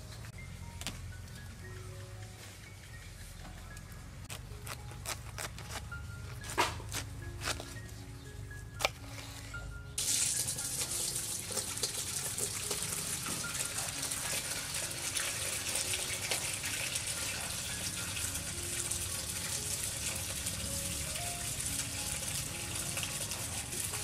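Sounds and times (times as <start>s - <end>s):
water splashing from hand washing: 10.0s - 17.4s
tap water pouring into metal basin: 10.0s - 24.0s.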